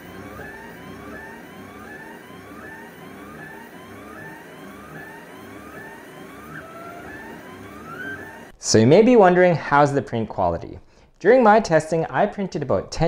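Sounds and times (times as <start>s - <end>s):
stepper motors whining: 0.0s - 8.6s.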